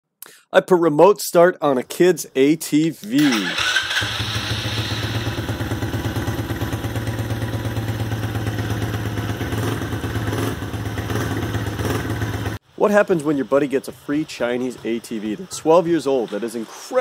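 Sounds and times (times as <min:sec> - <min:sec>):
small engine idling: 0:03.2 - 0:12.6.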